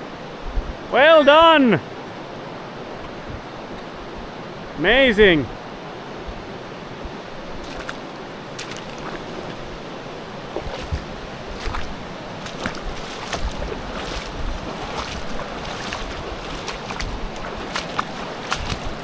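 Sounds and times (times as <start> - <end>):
river flowing: 0.0 - 19.0
wind buffeting microphone: 0.4 - 0.9, 6.2 - 19.0
short water splashes: 7.6 - 19.0.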